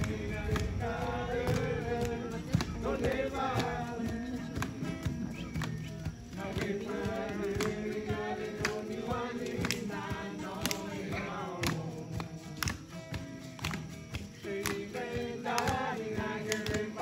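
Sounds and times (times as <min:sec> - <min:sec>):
sharp beat: 0:00.0 - 0:09.3
men singing in chorus: 0:00.0 - 0:13.0, 0:14.2 - 0:17.0.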